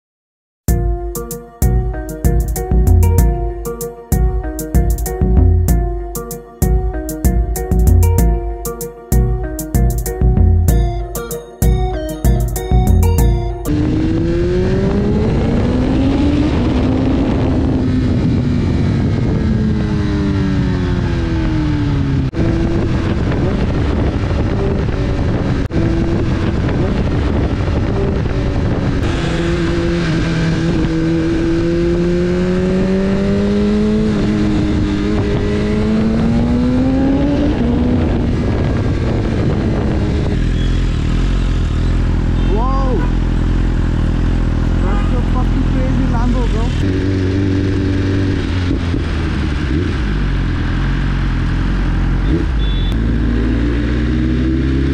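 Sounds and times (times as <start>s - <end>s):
motorcycle engine revving: 13.2s - 54.9s.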